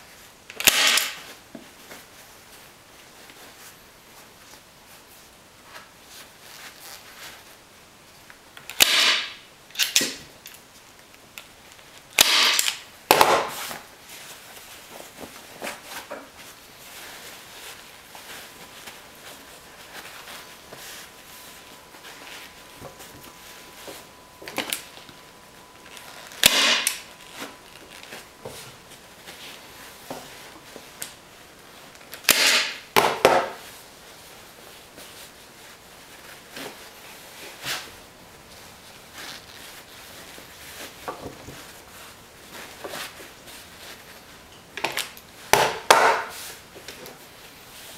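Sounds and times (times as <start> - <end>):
staple gun firing: 0.6 - 1.2, 8.7 - 10.1, 12.2 - 13.3, 26.4 - 27.0
fabric rustling: 1.2 - 8.2, 13.5 - 32.1, 33.5 - 44.5.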